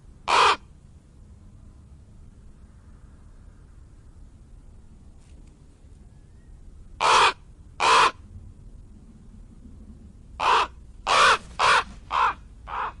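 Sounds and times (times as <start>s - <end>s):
crow cawing: 0.3s - 0.6s, 7.0s - 8.2s, 10.4s - 13.0s.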